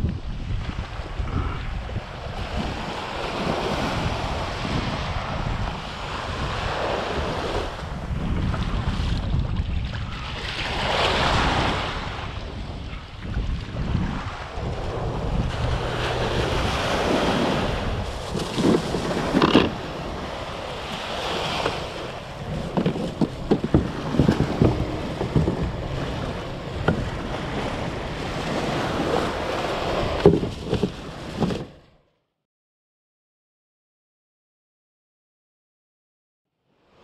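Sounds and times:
wind buffeting microphone: 0.0s - 31.8s
surf washing up beach: 0.2s - 31.8s
kayak knocks and bumps: 15.5s - 31.9s.

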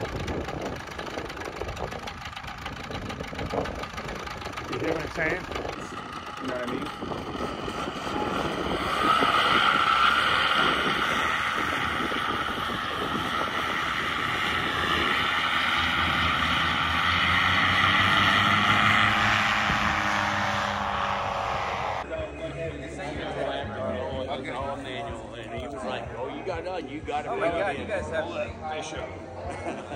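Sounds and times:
paramotor engine and propeller drone: 0.0s - 22.0s.

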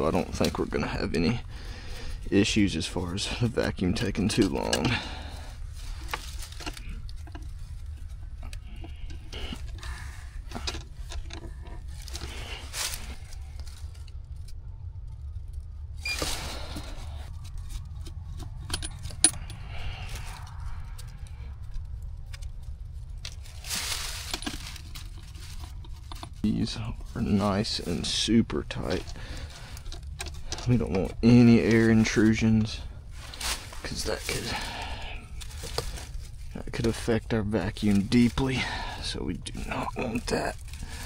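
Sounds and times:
steady low rumble: 0.0s - 41.0s
metallic clicks and rattles: 6.0s - 12.9s, 17.4s - 22.6s.

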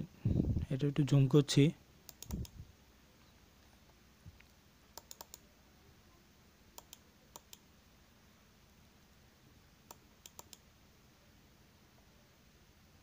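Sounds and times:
faint computer mouse clicks: 2.1s - 2.6s, 4.4s - 5.4s, 6.8s - 7.6s, 9.9s - 10.6s.

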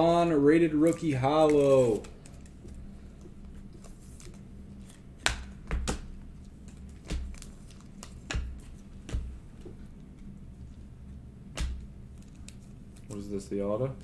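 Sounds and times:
trading cards snapping: 0.8s - 2.8s, 3.8s - 9.4s, 11.5s - 13.3s.

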